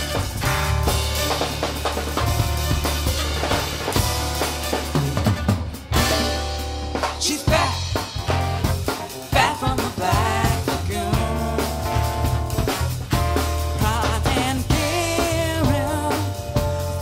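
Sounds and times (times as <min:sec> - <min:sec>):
bass: 0:00.0 - 0:17.0
drum kit: 0:00.0 - 0:17.0.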